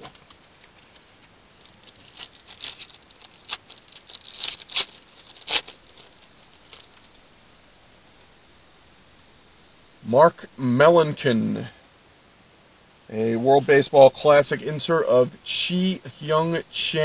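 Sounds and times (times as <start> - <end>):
paper and foil crinkling: 0.0 - 7.2.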